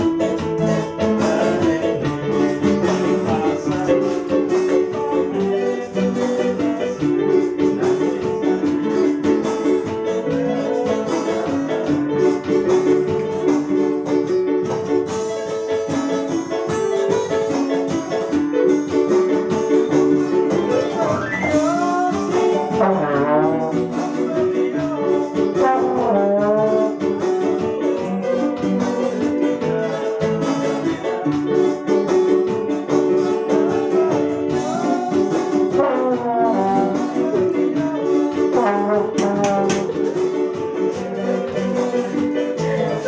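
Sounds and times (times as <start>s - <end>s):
electronic keyboards: 0.0s - 43.0s
strummed acoustic guitar: 0.0s - 43.0s
trombone: 20.5s - 27.2s, 33.6s - 40.2s.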